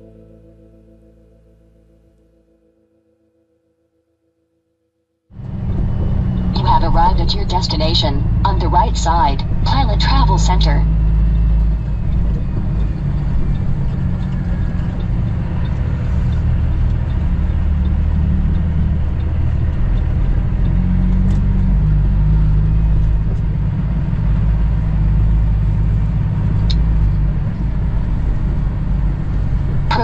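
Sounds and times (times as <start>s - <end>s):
diesel engine drone: 5.3s - 30.0s
faint regular ticking: 10.4s - 21.3s.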